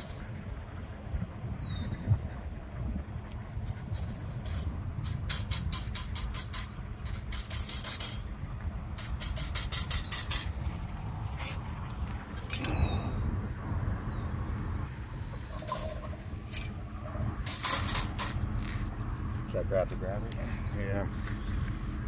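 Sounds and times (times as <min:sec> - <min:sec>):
wind on microphone: 0:00.0 - 0:19.4
wire cage trap rattling: 0:12.4 - 0:13.2, 0:15.4 - 0:16.8, 0:17.4 - 0:18.4.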